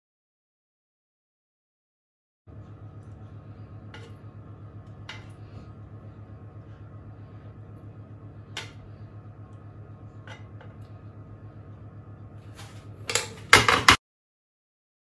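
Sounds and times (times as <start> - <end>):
steady low hum: 2.5 - 14.0.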